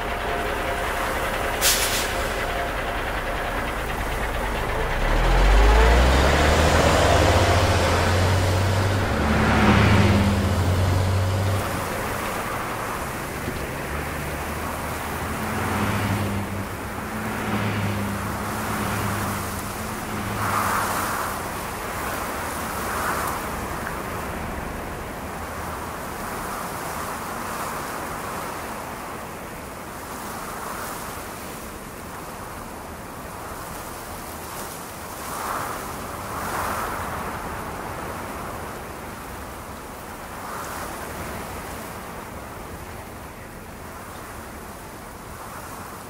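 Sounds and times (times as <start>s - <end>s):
vehicle engine pulling away: 0.0s - 27.0s
traffic hum: 0.0s - 46.0s.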